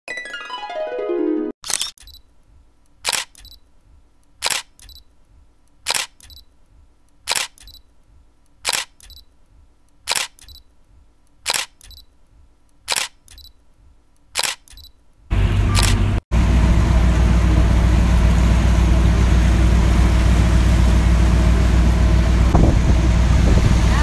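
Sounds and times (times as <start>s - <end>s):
camera shutter clicks: 1.6s - 2.2s, 3.0s - 3.6s, 4.4s - 5.0s, 5.8s - 6.4s, 7.3s - 7.8s, 8.6s - 9.3s, 10.0s - 10.6s, 11.4s - 12.1s, 12.9s - 13.5s, 14.4s - 14.9s, 15.8s - 16.0s.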